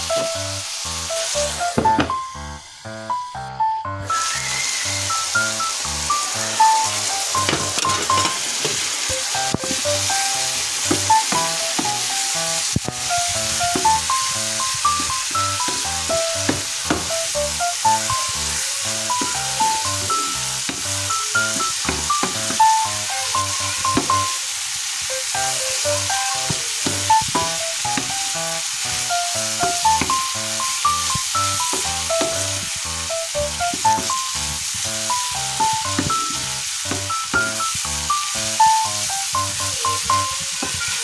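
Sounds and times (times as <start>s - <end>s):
food sizzling in a frying pan: 0.0s - 2.9s, 4.0s - 41.0s
background music: 0.0s - 8.5s, 9.1s - 24.4s, 25.1s - 40.2s.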